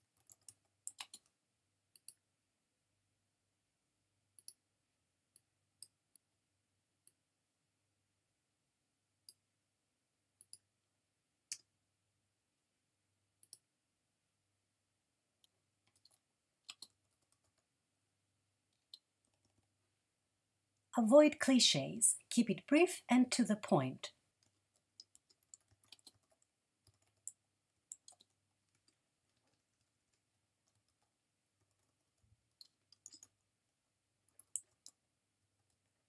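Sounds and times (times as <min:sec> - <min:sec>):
keyboard keys clicking: 0:00.1 - 0:01.3, 0:15.9 - 0:17.6, 0:25.0 - 0:32.0, 0:32.6 - 0:33.4
mouse clicks: 0:00.2 - 0:01.3, 0:01.9 - 0:02.2, 0:04.4 - 0:04.6, 0:10.4 - 0:10.7, 0:11.5 - 0:11.7, 0:13.4 - 0:13.7, 0:15.4 - 0:17.6, 0:18.8 - 0:19.6, 0:25.0 - 0:29.6, 0:32.6 - 0:33.4, 0:34.3 - 0:35.0.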